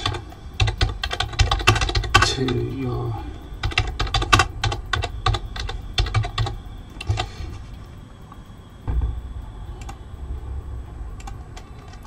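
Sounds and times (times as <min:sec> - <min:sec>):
keyboard typing: 0:00.0 - 0:02.7, 0:03.6 - 0:07.3, 0:09.8 - 0:10.0, 0:11.2 - 0:12.0
dull thump: 0:08.8 - 0:09.6
faint clicks: 0:09.8 - 0:10.0.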